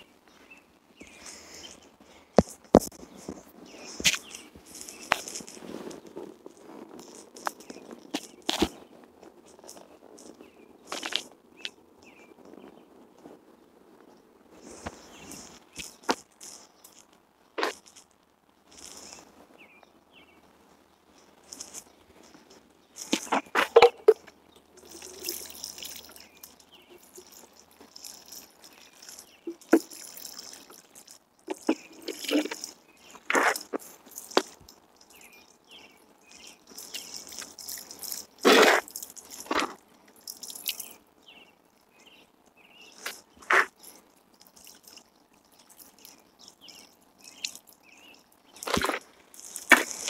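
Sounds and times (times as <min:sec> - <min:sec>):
water sprinkling from watering can: 0:21.4 - 0:41.0, 0:43.0 - 0:50.0.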